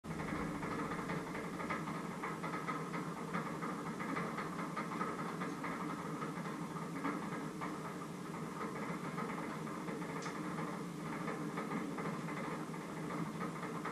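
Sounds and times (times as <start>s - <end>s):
steady machine hum: 0.1s - 13.9s.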